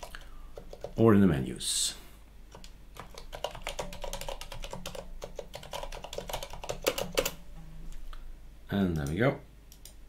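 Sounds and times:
keyboard typing clicks: 2.5s - 7.4s, 8.9s - 10.0s.

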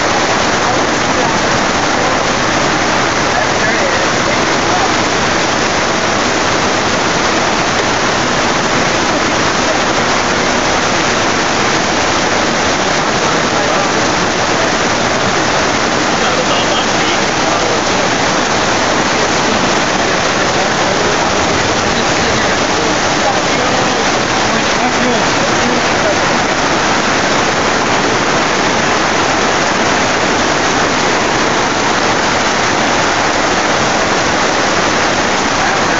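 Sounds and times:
heavy rain pouring: 0.0s - 35.9s.

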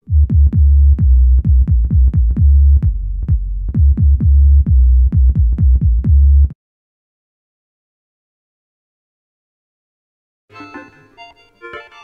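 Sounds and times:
synthesizer deep bass pattern: 0.0s - 6.6s.

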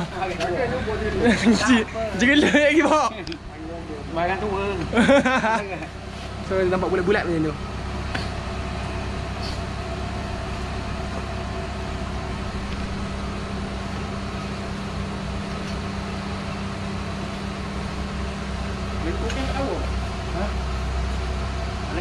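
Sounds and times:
machine humming: 0.0s - 22.0s.

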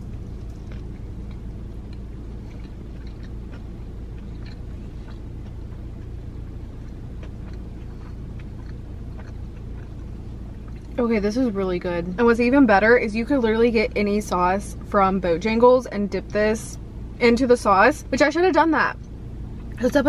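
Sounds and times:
person chewing crunchy food: 0.0s - 11.0s
low hum in car cabin: 0.0s - 20.0s.

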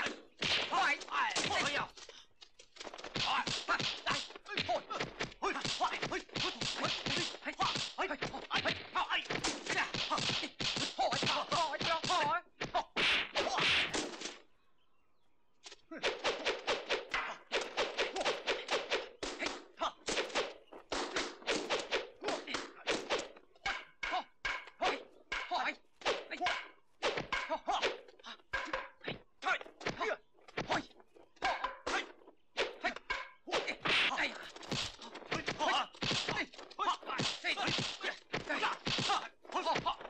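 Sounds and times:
punch and block whacks: 0.0s - 1.9s, 2.8s - 14.4s, 15.9s - 29.2s, 29.8s - 40.0s
punch and staff-strike whacks: 8.6s - 12.3s, 13.0s - 14.4s, 33.5s - 40.0s.

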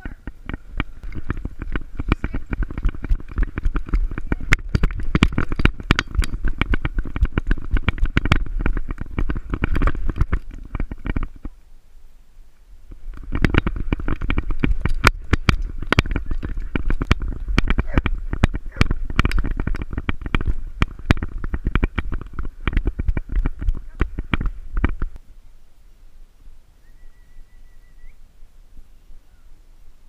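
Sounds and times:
camera thumps and rattles: 0.0s - 11.6s, 12.9s - 25.2s.

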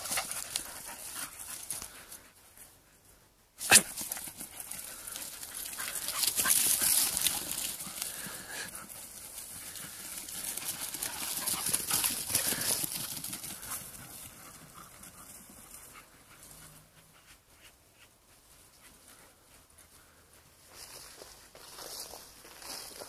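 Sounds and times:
footsteps rustling through dry stubble: 3.9s - 16.5s, 17.2s - 23.0s.

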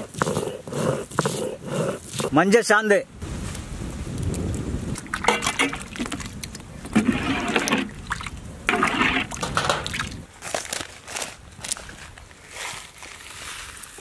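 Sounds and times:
water splashing in pot: 4.9s - 10.2s
hands squelching in water: 5.0s - 10.2s.

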